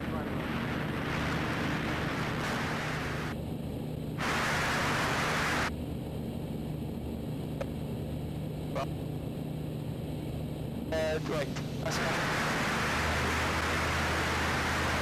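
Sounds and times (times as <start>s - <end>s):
static hiss: 0.0s - 3.4s, 4.2s - 5.7s, 11.0s - 15.0s
aircraft engine droning: 0.0s - 15.0s.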